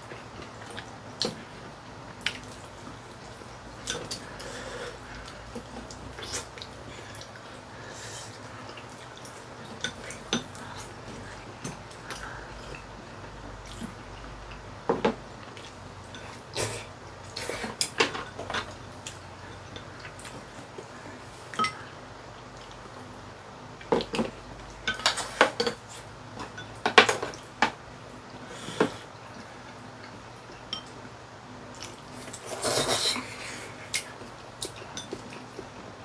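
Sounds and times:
chopsticks and spoons clinking on bowls: 21.5 - 21.8, 33.8 - 35.5.

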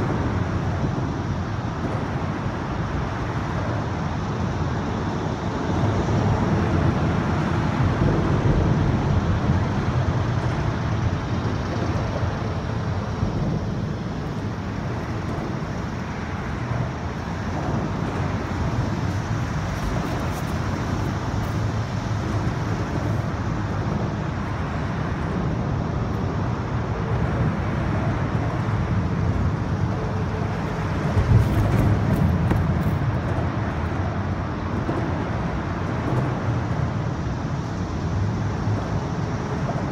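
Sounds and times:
highway traffic rumble: 0.0 - 39.9.

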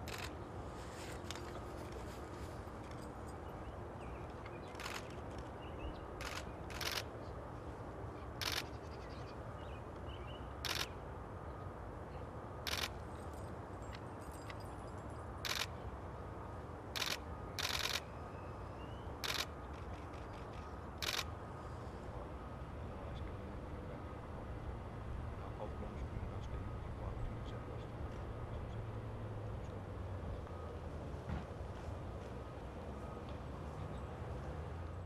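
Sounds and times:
camera shutter clicks: 0.0 - 0.3, 4.7 - 5.2, 6.2 - 7.1, 8.4 - 8.7, 10.6 - 10.9, 12.7 - 13.0, 15.4 - 15.7, 17.0 - 18.1, 19.2 - 19.5, 21.0 - 21.3
low outdoor background noise: 0.0 - 35.0.

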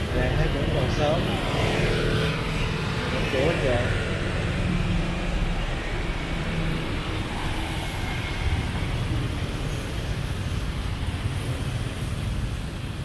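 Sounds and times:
city street traffic: 0.0 - 13.0.

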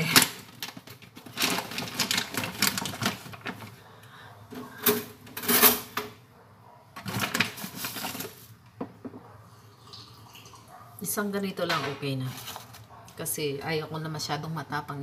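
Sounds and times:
coffee bag crinkling: 0.0 - 3.8, 7.0 - 8.5.

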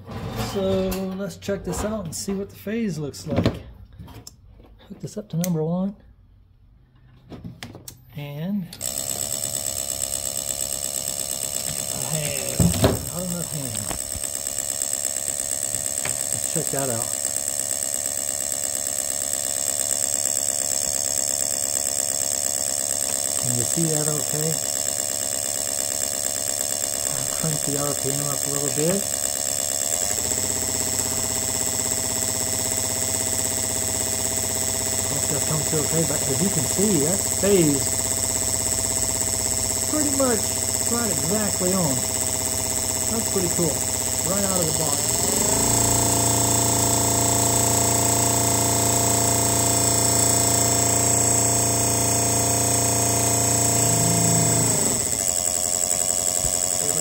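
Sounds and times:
electric drive whining: 8.7 - 57.0
sparks firing: 9.0 - 32.3, 39.9 - 53.6.

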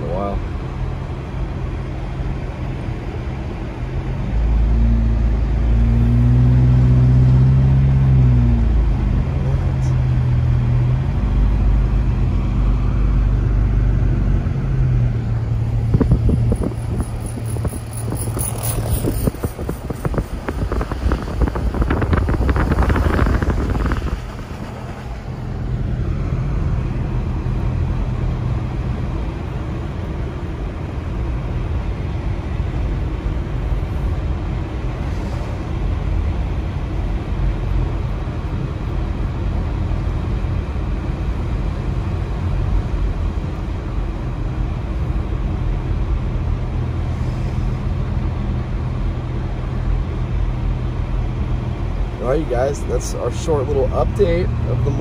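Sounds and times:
car engine and tyre drone: 0.0 - 55.0
loud rushing noise: 12.5 - 26.8.

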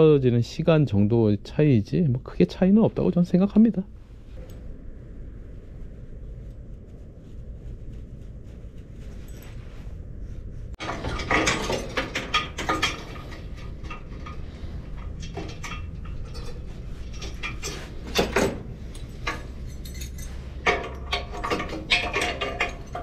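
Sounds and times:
steady low hum: 0.0 - 23.0
metal parts clinking and rattling: 10.8 - 23.0.

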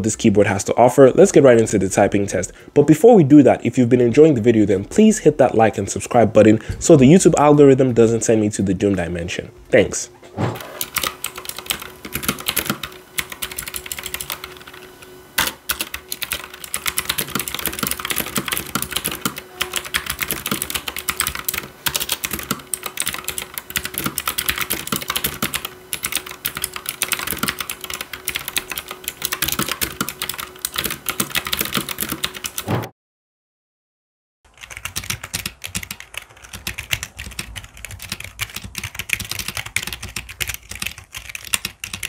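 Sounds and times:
typing on clicky mechanical keyboard: 10.6 - 32.7, 34.5 - 42.0.

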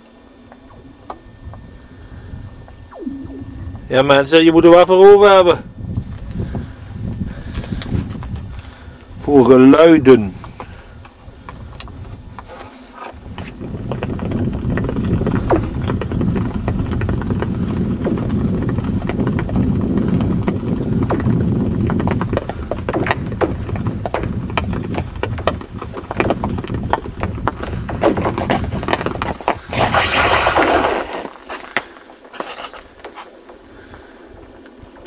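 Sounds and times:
ice skate blades rumbling: 10.2 - 34.6
ice clicking and cracking: 29.6 - 32.8.

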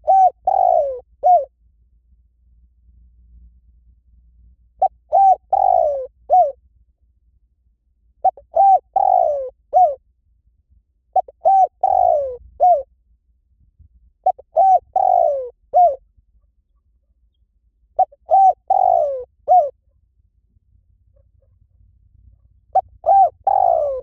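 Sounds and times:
dove cooing: 0.0 - 1.5, 4.8 - 6.6, 8.2 - 10.0, 11.1 - 12.9, 14.2 - 16.0, 18.0 - 19.8, 22.7 - 24.0.

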